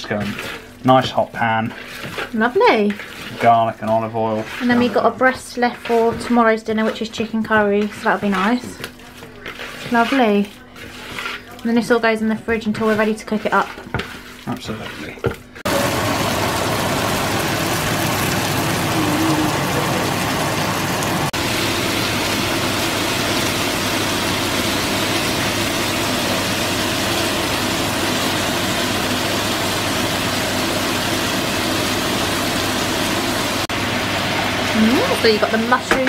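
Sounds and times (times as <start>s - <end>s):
chicken frying in oil: 0.0s - 36.0s.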